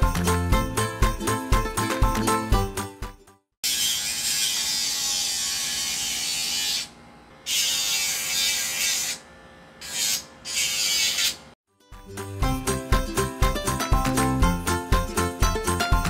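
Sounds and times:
dog nail grinder whining: 3.6s - 11.6s.

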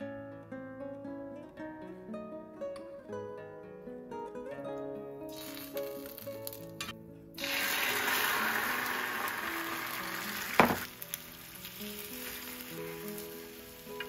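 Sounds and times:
egg sizzling in hot pan: 5.3s - 14.0s
sharp knock: 10.6s - 10.9s.

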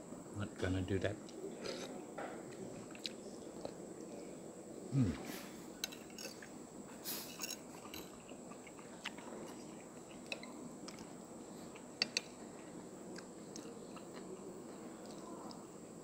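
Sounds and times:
person chewing: 2.9s - 3.8s, 7.3s - 15.6s.

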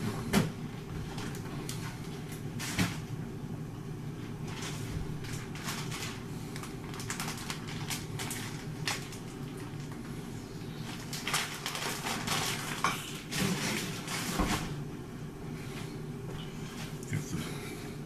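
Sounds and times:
steady low hum: 0.0s - 18.0s
rustling: 10.8s - 14.7s.

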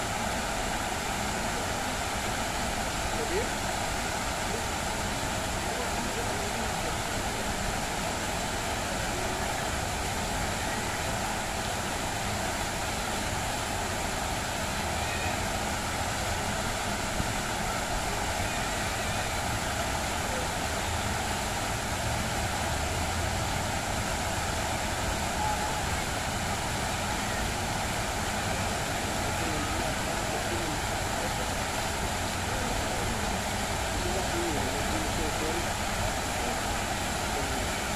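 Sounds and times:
fountain jets splashing into basin: 0.0s - 37.9s.

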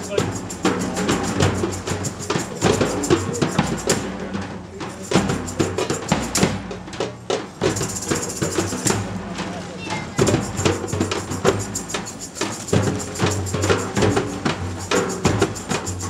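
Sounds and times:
bass drum: 0.0s - 16.0s
hand drums beating fast rhythm: 0.0s - 16.0s.

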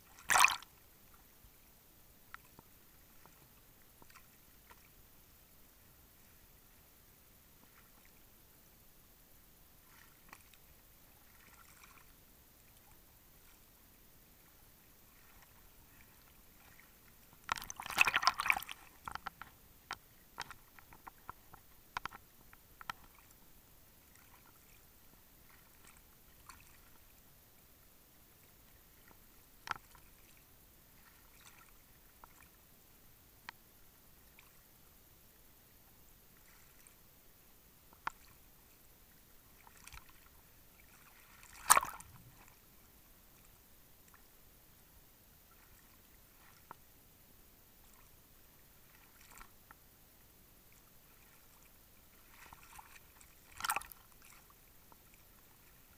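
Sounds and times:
water splashing and lapping: 0.0s - 1.2s, 2.4s - 5.0s, 9.7s - 13.9s, 14.8s - 23.4s, 24.0s - 27.2s, 28.6s - 32.6s, 36.4s - 37.0s, 39.4s - 42.7s, 45.4s - 46.9s, 47.8s - 49.8s, 50.7s - 55.9s.

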